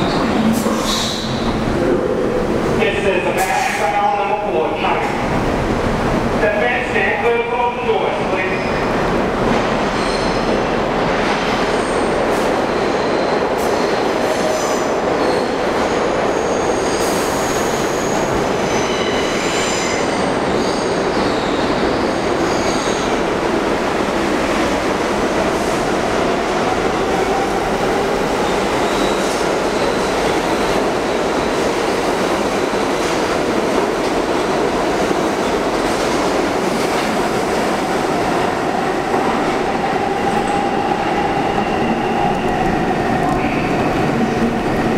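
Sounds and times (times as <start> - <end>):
rumble of wheels on rail: 0.0 - 44.9
train wheel squeal: 9.9 - 10.5, 16.4 - 21.7, 28.4 - 30.2.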